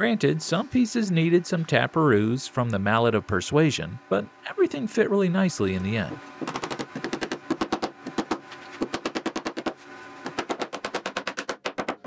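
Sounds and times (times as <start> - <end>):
mallet knocking plywood: 6.4 - 12.0.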